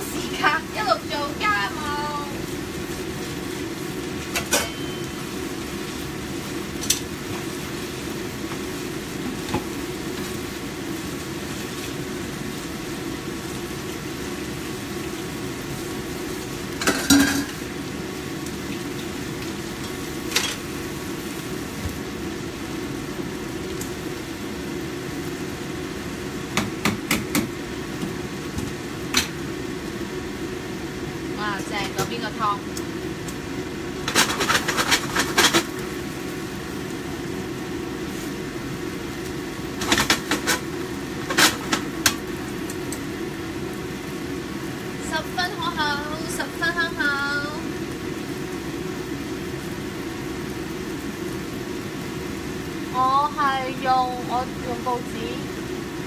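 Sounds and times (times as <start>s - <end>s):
food sizzling in a pan: 0.0s - 56.0s
dishes clinking: 16.8s - 17.6s.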